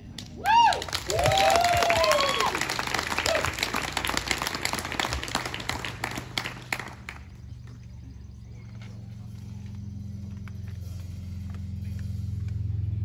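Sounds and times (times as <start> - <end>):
steady low hum: 0.0 - 13.0
audience applause: 0.4 - 7.5.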